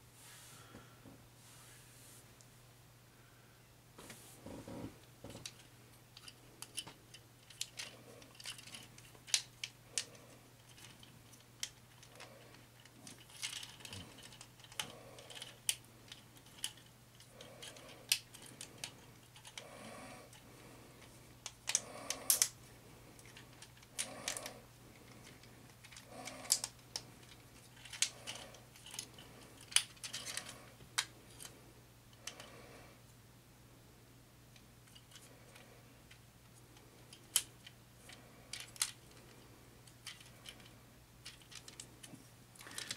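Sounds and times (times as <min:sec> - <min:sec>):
plastic toy parts clicking and rattling: 0:05.3 - 0:19.7, 0:21.0 - 0:22.6, 0:23.2 - 0:31.5, 0:32.1 - 0:32.5, 0:34.8 - 0:36.2, 0:37.0 - 0:42.9.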